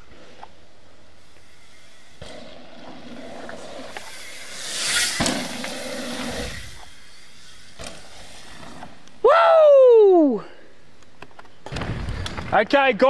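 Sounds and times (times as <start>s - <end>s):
bike tyres rolling on gravel: 0.0s - 9.3s.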